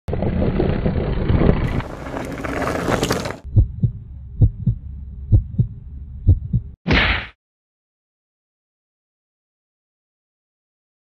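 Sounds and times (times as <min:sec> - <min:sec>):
rough rushing noise with crackles: 0:00.1 - 0:03.5
heartbeat thumps: 0:03.5 - 0:06.8.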